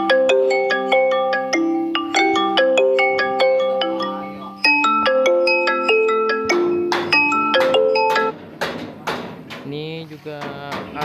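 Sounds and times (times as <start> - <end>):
bright mallet instrument melody: 0.0 - 8.4.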